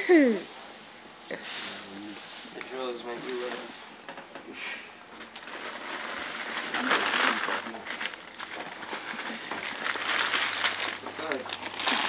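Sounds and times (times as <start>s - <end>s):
wrapping paper rustling: 5.2s - 12.0s.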